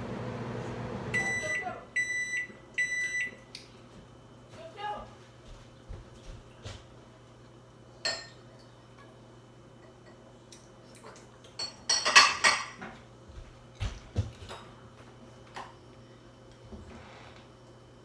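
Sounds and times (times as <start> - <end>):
faint steady hum: 0.0 - 18.0
dishes and utensils clinking: 8.0 - 9.1, 11.4 - 13.0.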